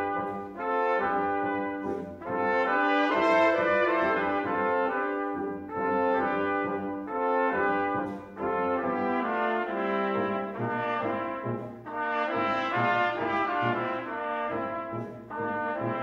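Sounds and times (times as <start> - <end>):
brass ensemble playing: 0.0 - 16.0.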